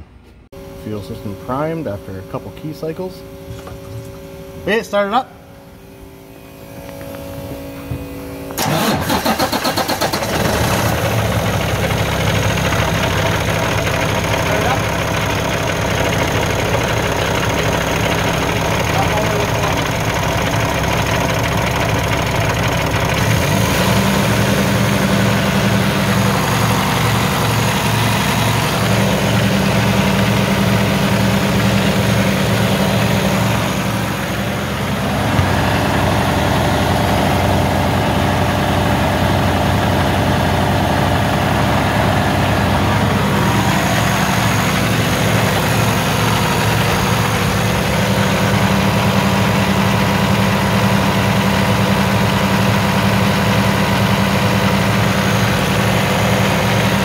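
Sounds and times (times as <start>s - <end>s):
higher steady hum: 0.5s - 8.7s, 24.3s - 49.4s
diesel engine idling: 0.5s - 57.0s.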